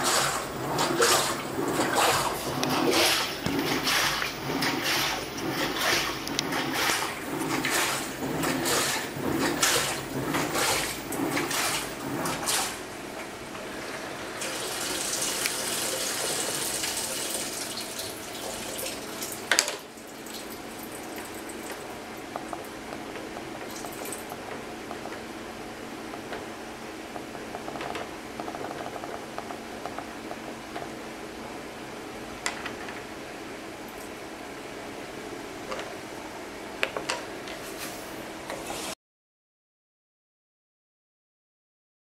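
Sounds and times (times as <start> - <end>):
washing machine water sloshing: 0.0 - 31.7, 37.7 - 39.0
low machine hum: 0.0 - 38.8.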